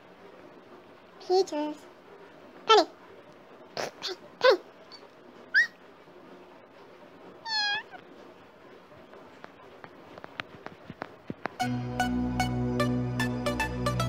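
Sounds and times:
cat meowing: 0:07.4 - 0:08.0.

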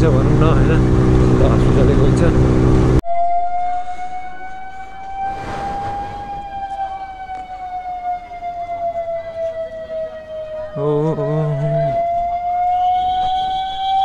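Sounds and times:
siren steady tone: 0:03.0 - 0:14.0
brief rush of noise: 0:05.2 - 0:07.0.

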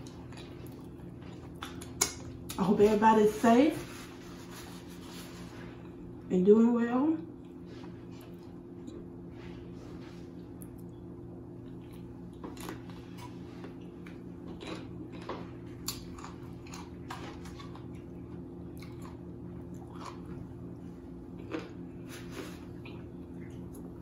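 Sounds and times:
person chewing and biting food: 0:00.0 - 0:02.6, 0:11.6 - 0:24.0
steady low hum: 0:00.0 - 0:24.0.

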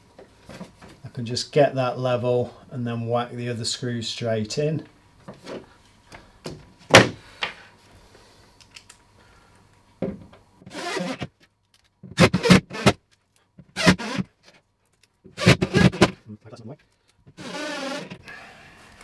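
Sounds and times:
screws being driven in: 0:10.7 - 0:11.3, 0:13.8 - 0:14.3, 0:15.4 - 0:16.1, 0:17.4 - 0:18.2.

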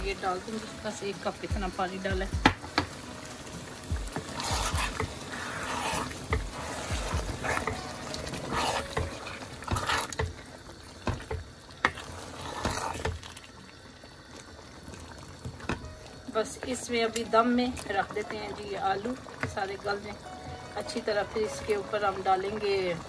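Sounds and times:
spoon stirring wet food: 0:03.9 - 0:13.4.

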